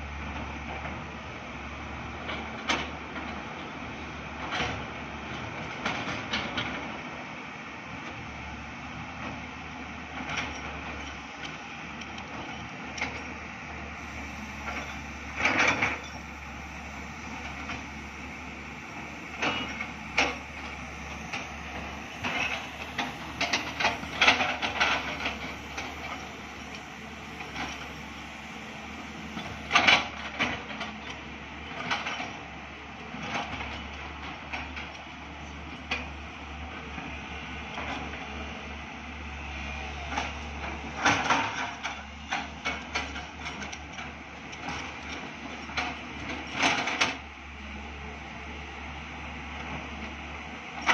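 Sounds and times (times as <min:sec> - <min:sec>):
diesel engine hum: 0:08.2 - 0:31.8
metallic clanks of excavator buckets: 0:14.1 - 0:31.2.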